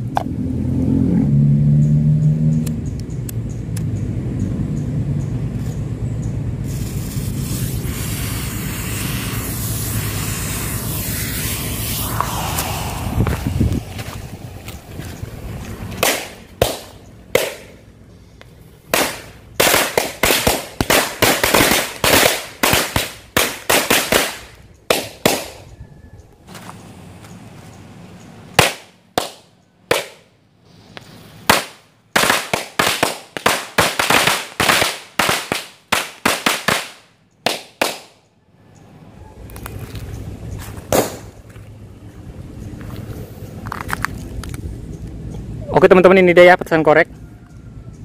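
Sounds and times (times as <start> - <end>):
firecrackers banging: 6.7 - 17.9, 18.8 - 25.6, 28.6 - 30.3, 31.4 - 38.2, 40.8 - 41.4.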